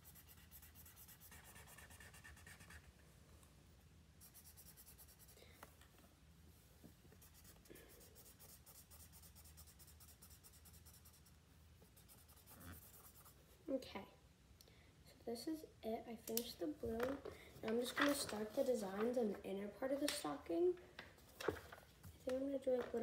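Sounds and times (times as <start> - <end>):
marker scribbling on paper: 0.0 - 2.9, 4.2 - 5.4, 7.2 - 13.4.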